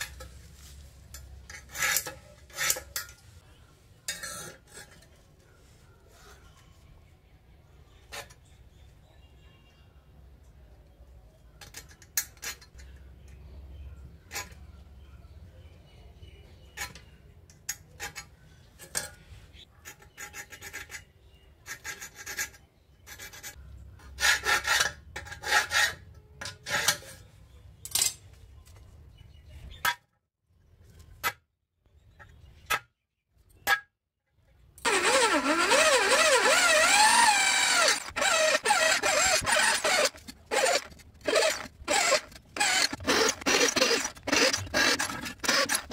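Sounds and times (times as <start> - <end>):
scriber scratching steel: 0.2 - 3.4, 34.8 - 45.9
drill boring through steel: 34.9 - 45.9.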